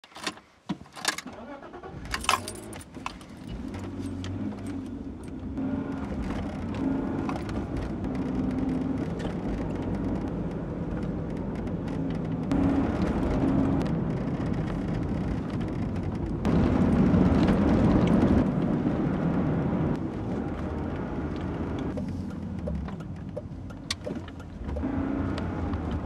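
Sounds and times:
car engine starting and idling: 0:01.0 - 0:26.0
keys jangling: 0:02.1 - 0:04.8.

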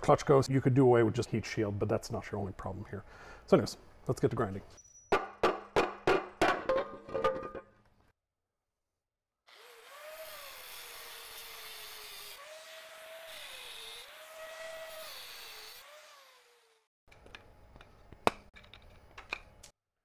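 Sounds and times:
angle grinder grinding metal: 0:09.5 - 0:16.9.

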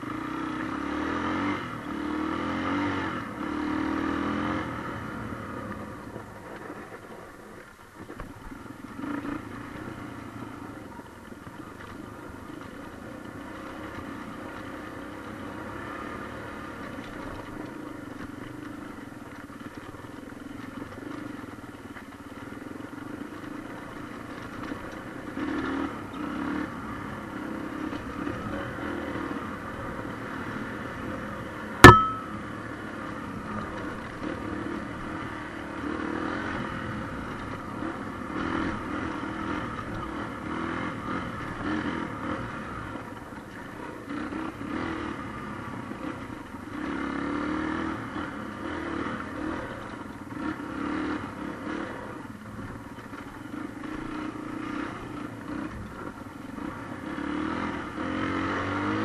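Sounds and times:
motorcycle engine running: 0:00.0 - 0:59.0
sharp loud knock: 0:31.8 - 0:32.3.

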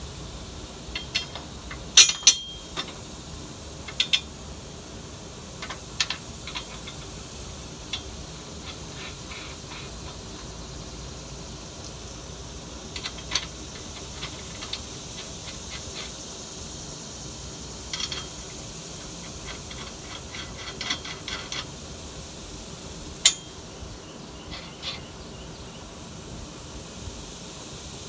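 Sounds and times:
steady background hiss: 0:00.0 - 0:28.0
metal hardware clicking: 0:00.9 - 0:03.0, 0:12.9 - 0:16.1, 0:17.9 - 0:18.5.

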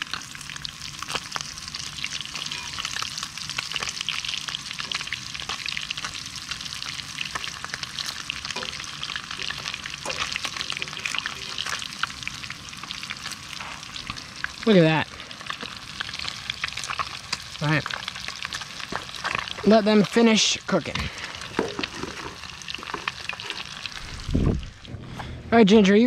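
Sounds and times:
fish sizzling in hot oil: 0:00.0 - 0:24.3
fork scraping a pan: 0:09.4 - 0:11.8.

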